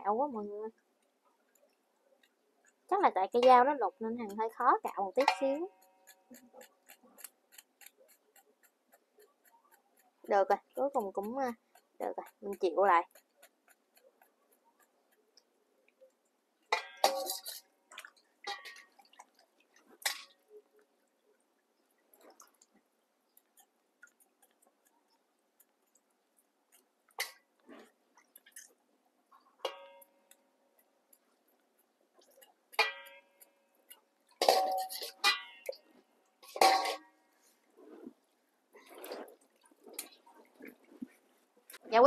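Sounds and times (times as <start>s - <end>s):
water dripping and splashing: 16.6s - 24.9s, 38.2s - 41.8s
kitchenware clinking and knocking: 16.7s - 17.6s, 34.4s - 35.6s, 36.5s - 37.1s.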